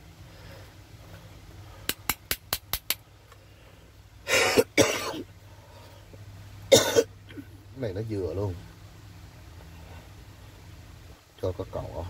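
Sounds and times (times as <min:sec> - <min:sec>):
sharp taps of fan motor parts: 0:01.8 - 0:03.4
person coughing: 0:04.3 - 0:05.3, 0:06.7 - 0:07.4.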